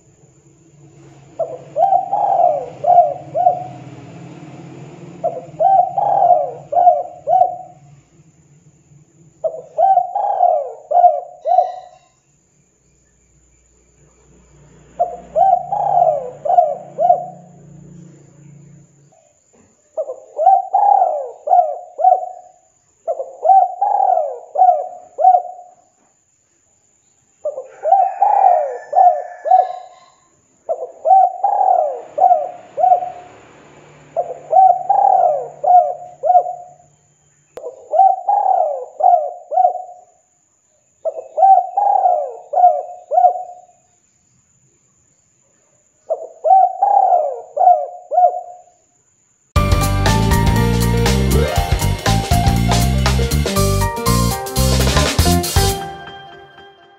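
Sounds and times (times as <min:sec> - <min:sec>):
dove cooing: 0:01.2 - 0:04.0, 0:05.1 - 0:08.0, 0:09.4 - 0:12.0, 0:15.0 - 0:17.6, 0:20.0 - 0:22.5, 0:23.1 - 0:25.8, 0:27.5 - 0:33.3, 0:34.2 - 0:36.8, 0:37.6 - 0:40.1, 0:41.1 - 0:43.7, 0:46.1 - 0:48.7.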